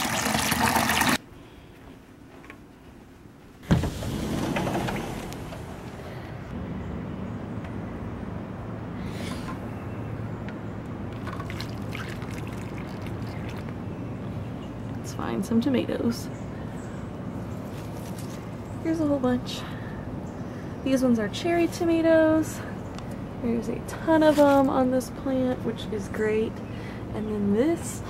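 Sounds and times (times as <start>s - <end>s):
water trickling onto soil: 11.1s - 13.8s.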